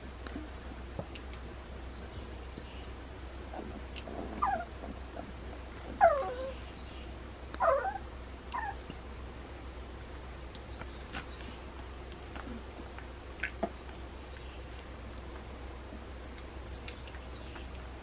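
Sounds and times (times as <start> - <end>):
puppy whimpering: 3.5 - 5.3, 5.9 - 6.6, 7.6 - 9.0.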